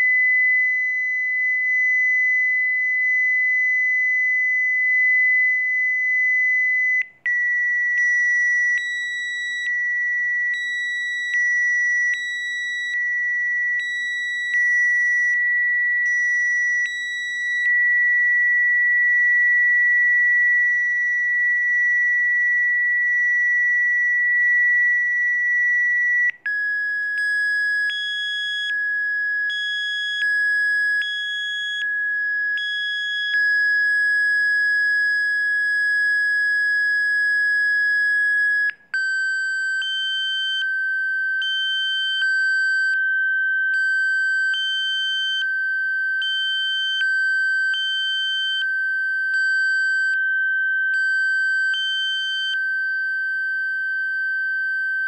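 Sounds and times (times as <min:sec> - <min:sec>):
steady high sine tone: 0:00.0 - 0:26.5.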